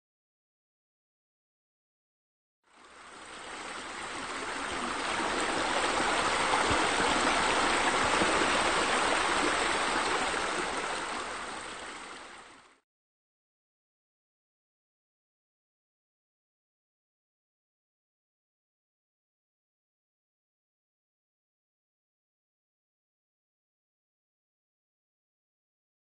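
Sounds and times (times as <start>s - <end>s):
water rushing: 2.7s - 12.8s.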